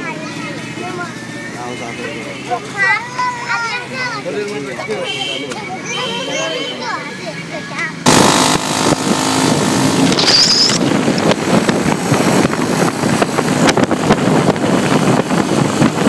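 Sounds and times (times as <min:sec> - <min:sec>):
road noise: 0:00.0 - 0:16.0
vehicle engine running: 0:07.8 - 0:16.0
wind buffeting microphone: 0:10.8 - 0:16.0.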